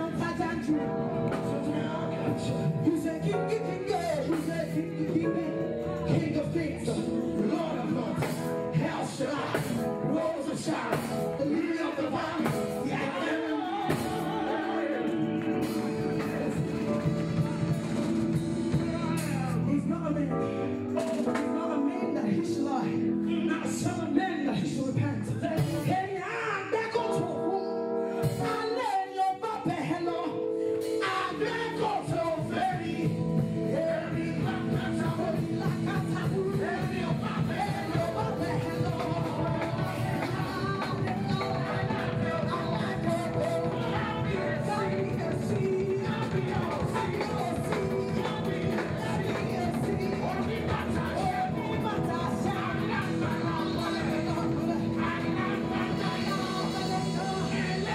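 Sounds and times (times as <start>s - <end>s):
gospel band playing: 0.0s - 57.9s
woman singing into a microphone: 7.4s - 17.7s, 21.6s - 57.9s.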